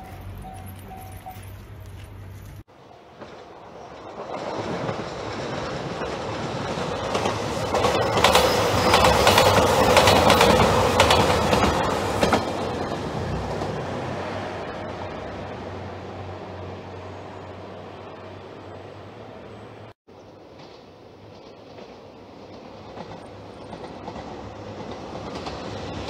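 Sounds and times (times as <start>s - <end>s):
wheels clicking over rail joints: 0.0s - 14.1s, 20.5s - 26.0s
train engines and wheels rumbling: 0.0s - 26.0s.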